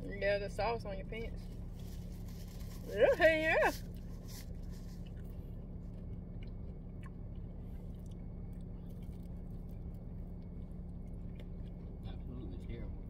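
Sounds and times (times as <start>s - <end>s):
car cabin hum: 0.0s - 13.0s
person chewing: 3.8s - 12.0s.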